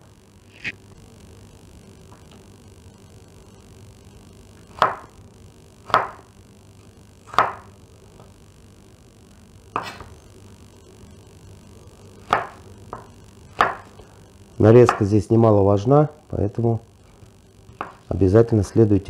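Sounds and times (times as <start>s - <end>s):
knife chopping on wooden board: 5.9s - 6.2s, 7.3s - 7.6s, 12.2s - 13.9s.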